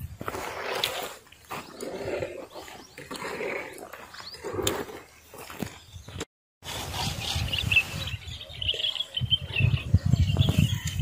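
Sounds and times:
wind rumbling on microphone: 6.7s - 11.0s
small birds chirping: 6.9s - 11.0s.

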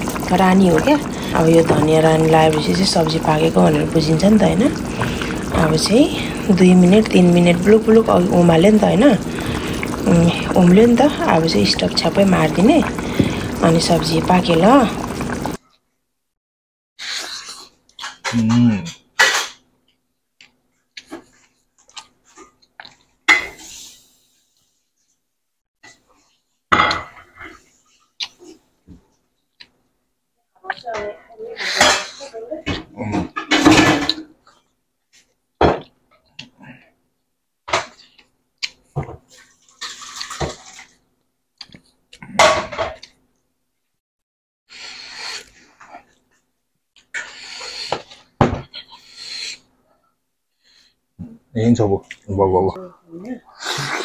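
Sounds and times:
liquid splashing: 0.0s - 15.6s, 39.3s - 41.0s
kitchen knocks and clatters: 26.7s - 27.6s, 31.8s - 34.3s, 35.6s - 35.9s, 38.9s - 40.9s, 42.4s - 43.0s, 47.9s - 48.8s.

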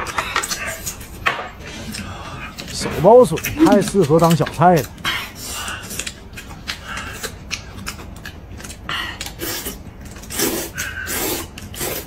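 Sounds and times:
noodles being slurped: 9.2s - 12.0s.

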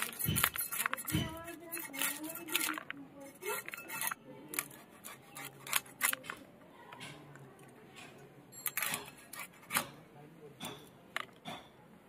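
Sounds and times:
knife scraping fish scales: 0.0s - 6.4s, 8.7s - 10.0s.

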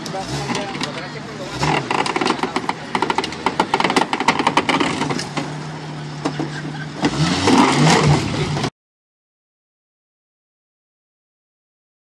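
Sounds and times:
engine running and revving: 0.0s - 8.7s
car body cracking and crunching: 1.6s - 5.6s.

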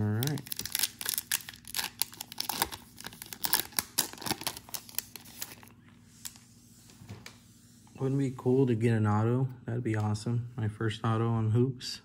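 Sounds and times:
plastic wrapper tearing and crinkling: 0.0s - 6.4s.

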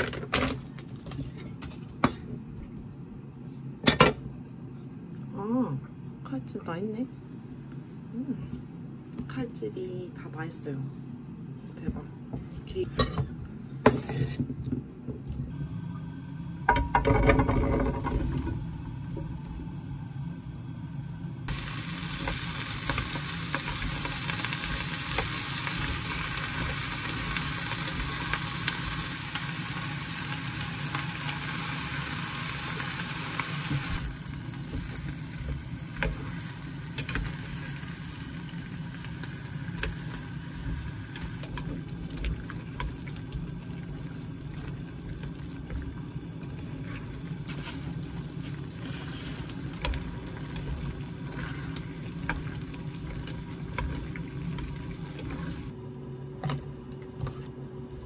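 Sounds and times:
steady low hum: 0.6s - 58.0s
food sizzling in a frying pan: 15.5s - 55.7s.

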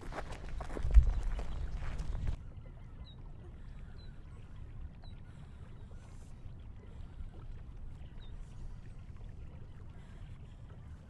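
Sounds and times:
wind on microphone: 0.0s - 2.4s.

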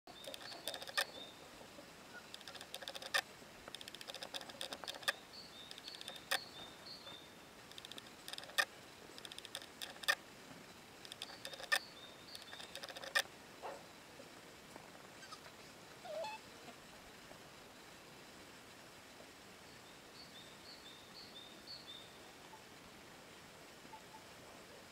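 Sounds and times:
rapid clicking bursts: 0.1s - 1.2s, 2.3s - 6.4s, 7.7s - 10.2s, 11.0s - 13.3s
sharp clicks: 0.1s - 1.2s, 2.3s - 6.5s, 7.7s - 10.2s, 11.0s - 13.3s
small birds chirping: 0.1s - 10.2s, 11.0s - 13.8s, 19.7s - 22.6s.

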